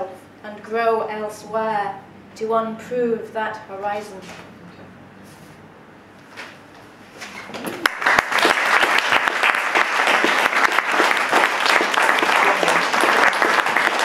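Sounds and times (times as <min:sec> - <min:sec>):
audience applauding: 0:07.6 - 0:14.0.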